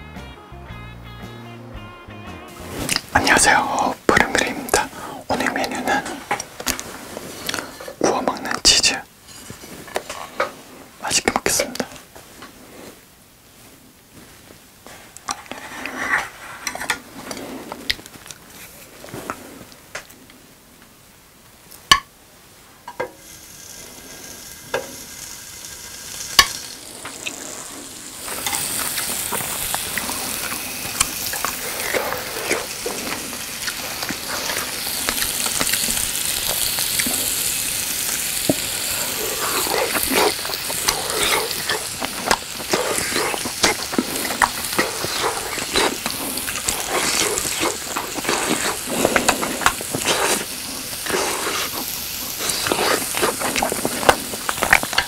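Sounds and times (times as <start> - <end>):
cheese sizzling on a grill: 5.9 - 8.0, 22.8 - 55.0.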